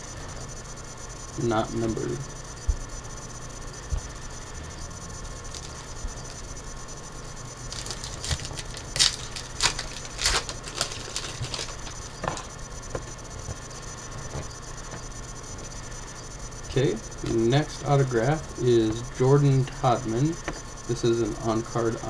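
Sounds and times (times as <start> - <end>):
foil wrapper crinkling and tearing: 7.6 - 12.5
cards shuffling: 7.7 - 12.5.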